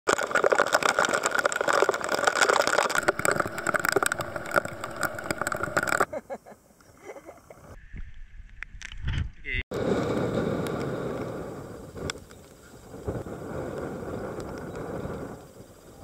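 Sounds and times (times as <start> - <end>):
raindrops hitting microphone: 0.1 - 6.1, 9.8 - 15.4
wind: 0.1 - 16.0
heavy rain: 2.5 - 6.0.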